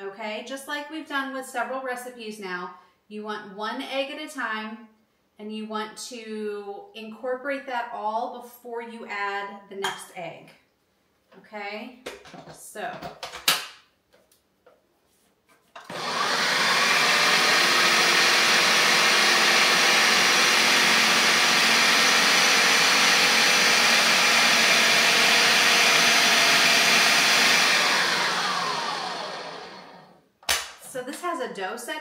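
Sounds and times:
food processor motor running: 15.8 - 30.1.

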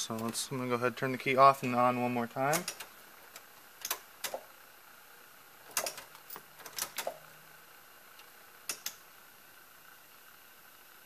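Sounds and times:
ignition key clicking: 8.7 - 9.0.

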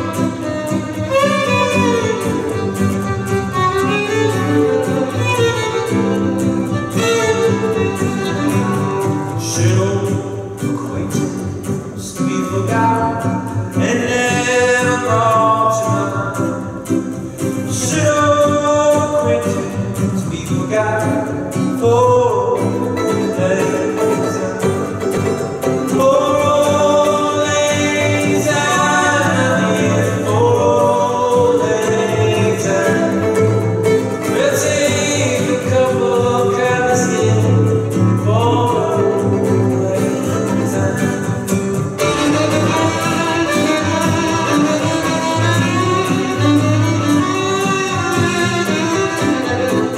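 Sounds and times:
violin: 0.0 - 11.0, 22.2 - 49.9
strummed acoustic guitar: 0.0 - 49.9
men singing in harmony: 21.8 - 25.0, 25.6 - 47.4.

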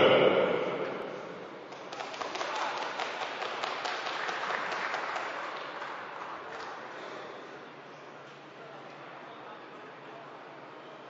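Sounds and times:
audience clapping: 1.7 - 7.0.

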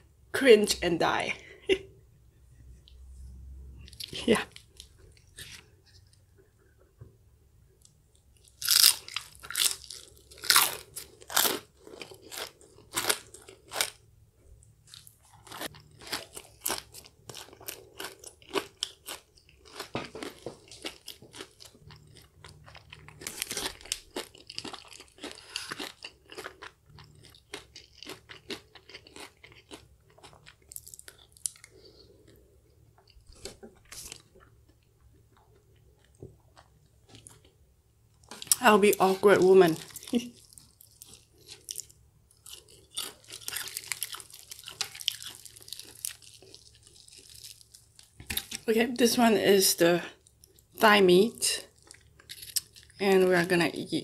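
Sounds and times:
crunchy chewing of fried chicken: 8.4 - 14.1, 14.8 - 32.4, 39.8 - 48.6, 51.6 - 53.0.

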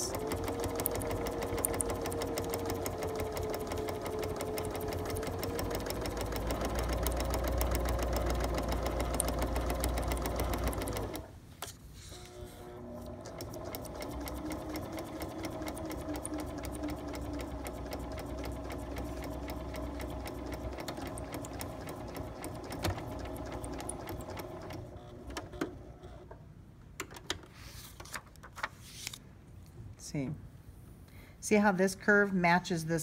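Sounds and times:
sewing machine stitching: 0.0 - 11.3, 12.4 - 26.2.

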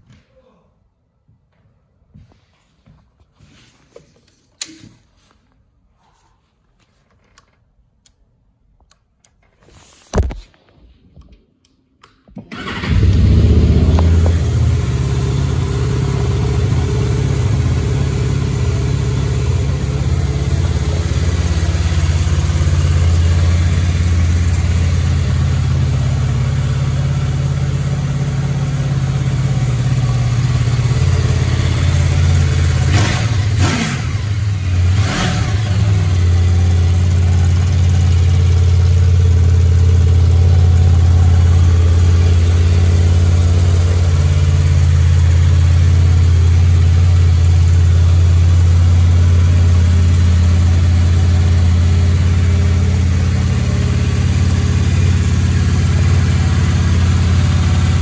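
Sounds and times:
motorcycle engine starting and idling: 12.2 - 58.0.

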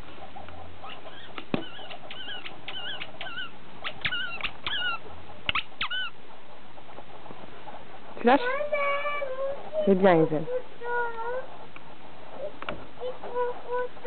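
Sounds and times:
squeaky rubber ball squeaking: 0.8 - 6.2
sharp clicks: 1.3 - 4.8.

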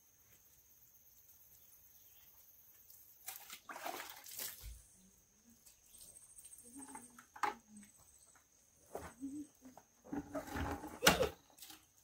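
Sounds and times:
water sloshing in a bucket: 2.9 - 5.0.

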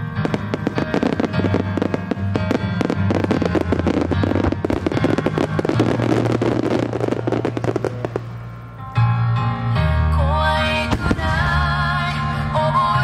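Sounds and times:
fireworks crackling: 0.0 - 8.8, 10.9 - 11.9
music with low notes: 0.0 - 13.0.

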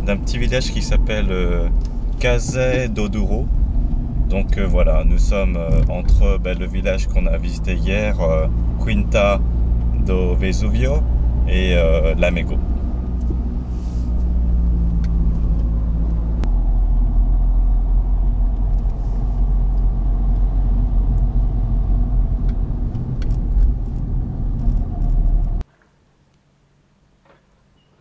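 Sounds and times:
car engine and tyre rumble: 0.0 - 25.7
click inside car: 14.9 - 15.8, 22.4 - 25.6.

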